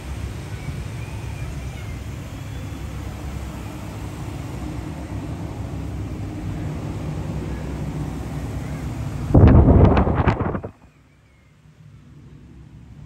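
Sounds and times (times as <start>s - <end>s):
steady low rumbling: 3.1s - 10.9s.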